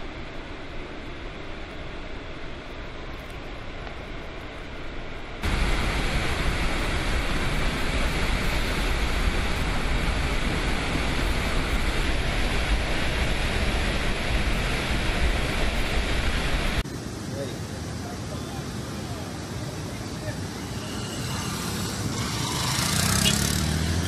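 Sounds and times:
water rushing torrent: 4.8s - 24.0s.

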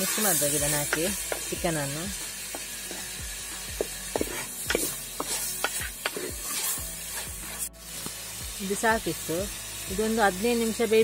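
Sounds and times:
background music: 0.0s - 11.0s
soft sizzle: 0.0s - 11.0s
wooden spoon scraping clay pot: 4.1s - 7.7s.

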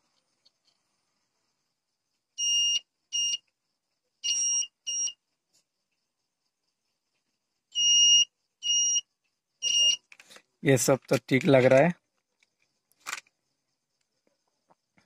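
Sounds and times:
multimeter continuity beeps: 2.4s - 3.5s, 4.2s - 5.2s, 7.7s - 10.1s.

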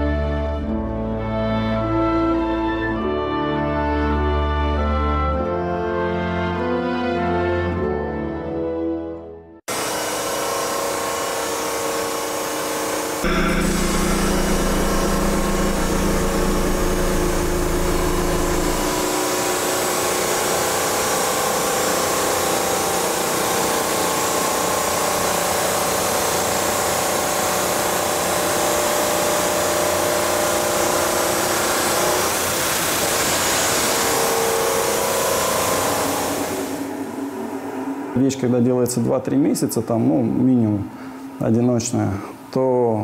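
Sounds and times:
motor hum: 9.7s - 38.2s.

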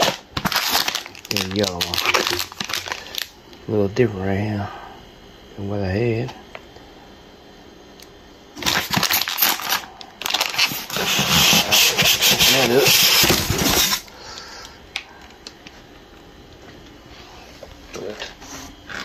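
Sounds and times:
plastic and foam packing rustling: 0.0s - 3.3s, 8.6s - 14.1s.

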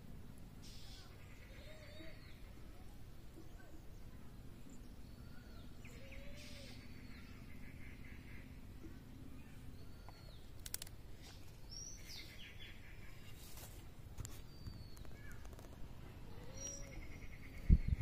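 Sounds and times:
low background rumble: 0.0s - 18.0s
birds chirping: 0.6s - 18.0s
sharp clicks: 10.5s - 11.0s.

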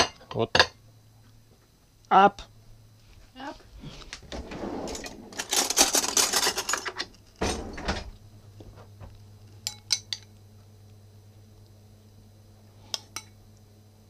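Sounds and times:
steady low hum: 0.0s - 14.0s
kitchen handling clatter: 4.2s - 8.2s
metal spoon clinking ceramic bowl: 9.6s - 10.3s.

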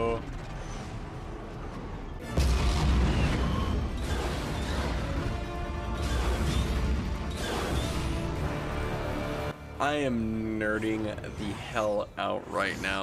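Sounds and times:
soundtrack music: 0.3s - 13.0s.

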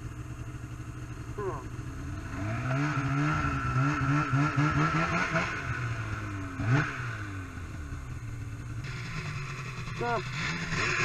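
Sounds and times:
snowmobile engine revving: 1.3s - 7.9s, 8.8s - 11.0s.

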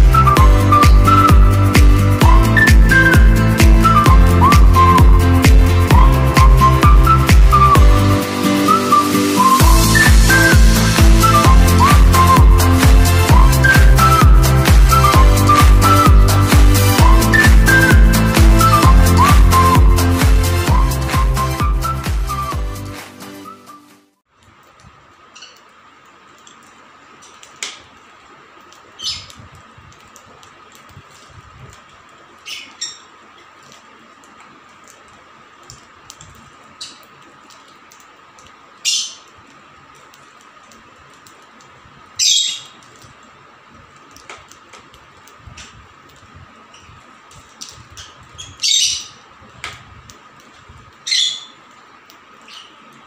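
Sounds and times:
faint bird chirps: 25.3s - 25.6s, 29.0s - 29.4s, 32.4s - 33.2s, 51.0s - 51.6s, 52.4s - 52.9s
lovebirds squawking: 29.0s - 29.3s, 32.5s - 33.1s, 38.8s - 39.3s, 42.2s - 42.8s, 48.0s - 49.2s, 51.0s - 51.6s.

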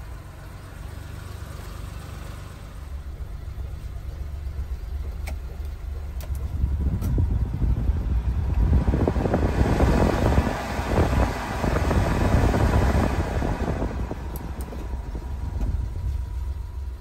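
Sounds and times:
engine idling: 0.0s - 17.0s
heater blower fan air rush: 3.9s - 17.0s.

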